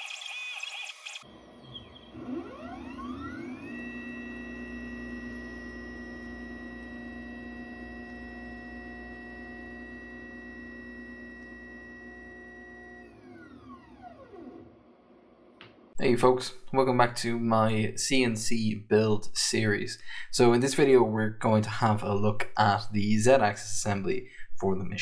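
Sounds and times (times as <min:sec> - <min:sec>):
stepper motors whining: 0:00.0 - 0:15.0.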